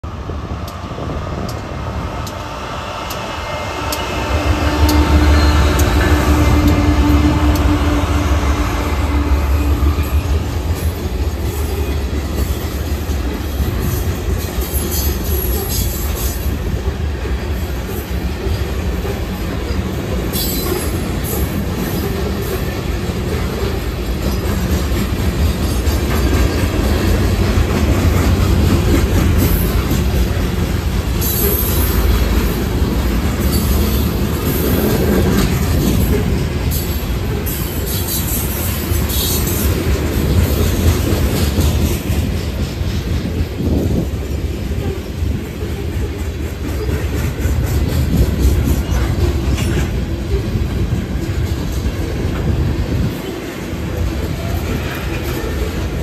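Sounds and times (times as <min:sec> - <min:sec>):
diesel locomotives rumbling: 0:00.0 - 0:56.0
high wheel squeal: 0:03.2 - 0:07.8.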